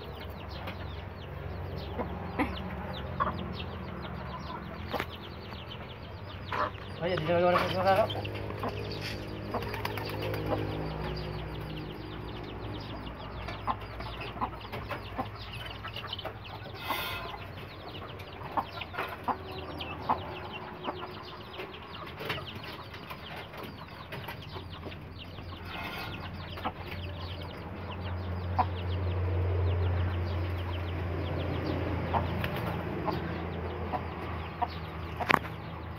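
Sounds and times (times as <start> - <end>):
chickens clucking: 0.0 - 35.9
wings fluttering: 8.4 - 11.2, 32.2 - 33.0.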